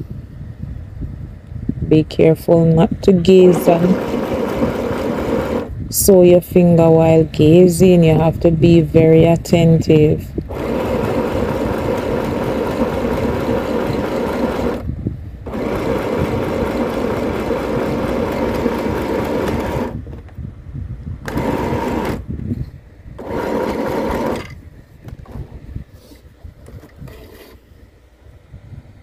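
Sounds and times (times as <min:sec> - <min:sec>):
sewing machine stitching: 0:03.4 - 0:05.7, 0:10.5 - 0:14.8, 0:15.5 - 0:20.0, 0:21.3 - 0:22.2, 0:23.2 - 0:24.6.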